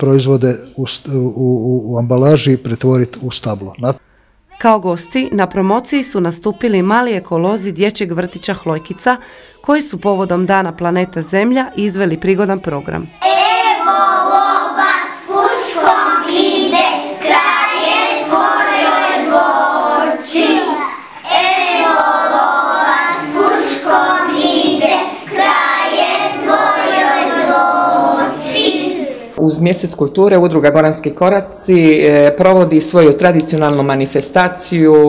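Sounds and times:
children singing: 13.2 - 29.4.

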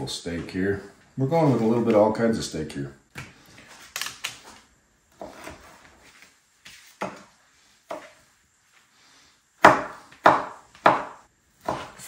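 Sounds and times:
knife chopping on cutting board: 9.6 - 12.0.

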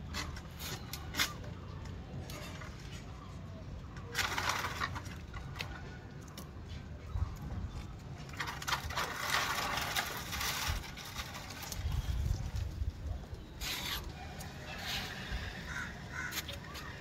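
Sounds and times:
plant leaves rustling: 7.4 - 17.0.

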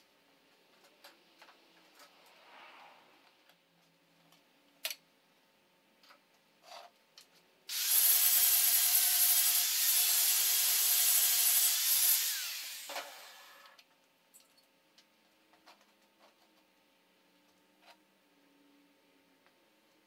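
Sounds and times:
angle grinder grinding steel: 7.7 - 13.8.

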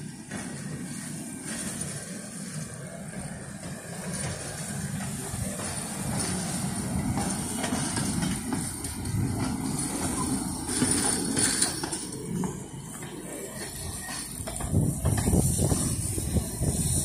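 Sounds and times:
rail trolley engine running: 0.0 - 17.0
wheels clicking on rails: 0.0 - 17.0.

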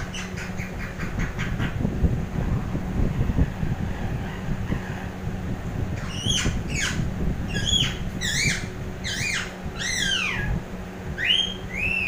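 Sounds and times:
parakeet calling: 0.0 - 1.9, 5.9 - 10.6, 11.2 - 12.0
low background rumble: 0.0 - 12.0.

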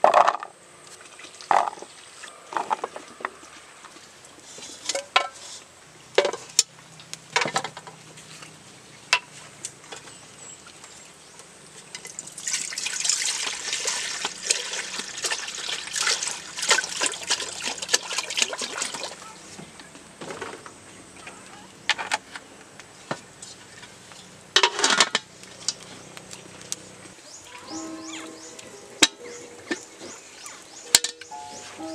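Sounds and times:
water pouring into metal pot: 12.0 - 19.2
metal pot and lid clanking: 24.6 - 25.3, 30.8 - 31.9.

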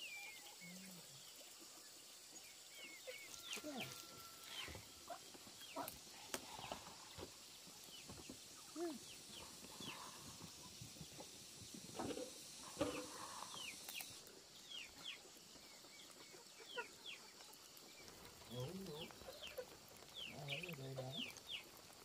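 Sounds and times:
low farm bird call: 2.8 - 7.4, 8.1 - 11.2, 12.0 - 14.1.

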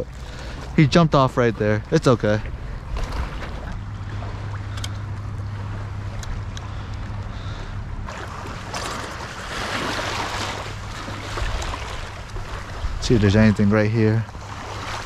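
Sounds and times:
waves lapping on shore: 0.0 - 15.0
wind rumbling on microphone: 9.3 - 13.7.

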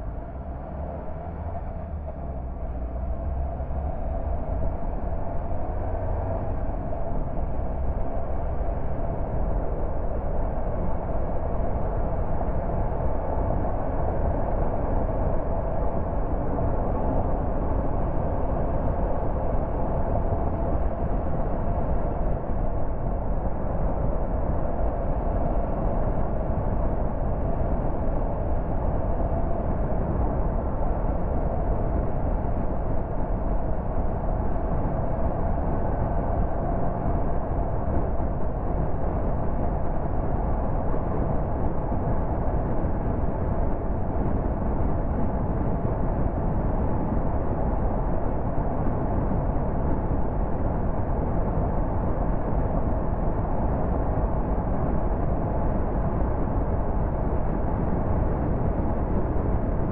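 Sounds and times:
faint steady hum: 0.0 - 59.9
wind noise: 0.0 - 59.9.

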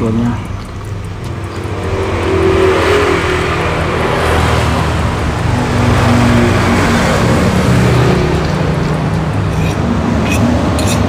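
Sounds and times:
engine running low hum: 0.0 - 11.0.

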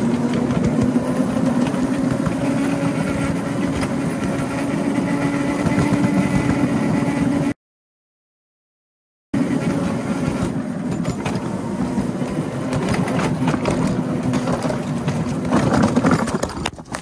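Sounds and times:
wheels clattering on rails: 0.0 - 7.3, 9.4 - 17.0
constant hum: 0.0 - 7.5.

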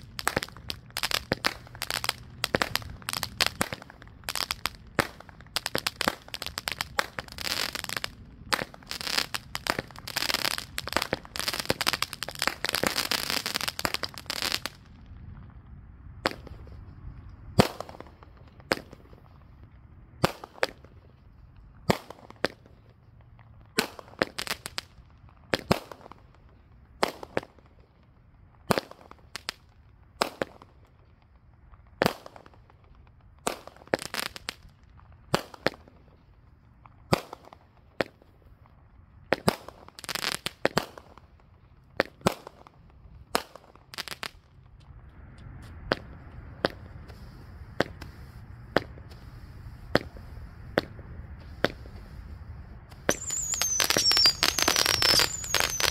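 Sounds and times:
firework shots firing: 0.0 - 14.9, 16.2 - 16.8, 17.6 - 19.5, 20.2 - 21.0, 21.8 - 22.8, 23.7 - 27.7, 28.7 - 29.6, 30.2 - 30.7, 32.0 - 32.6, 33.4 - 36.0, 37.1 - 38.3, 39.3 - 44.5, 52.9 - 55.9
firework crackling: 0.0 - 16.9, 17.6 - 55.9.

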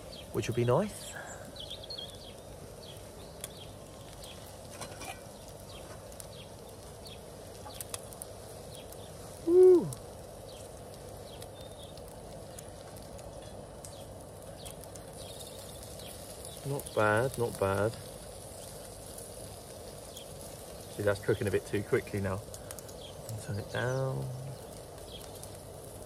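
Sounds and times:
sausages and bacon sizzling on grill: 0.0 - 26.0
call rising then falling in pitch: 9.4 - 10.0.

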